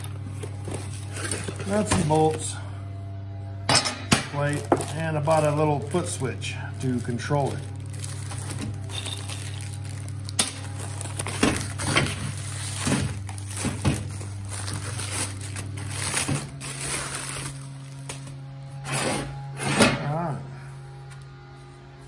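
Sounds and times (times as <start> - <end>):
plastic bags crinkling: 0.0 - 2.6, 4.3 - 18.5
low mechanical hum: 0.0 - 22.0.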